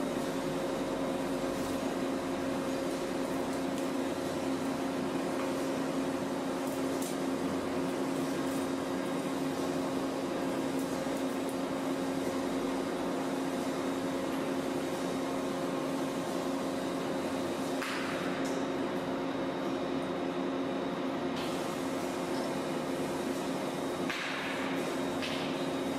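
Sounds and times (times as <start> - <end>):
mechanical hum: 0.0 - 25.9.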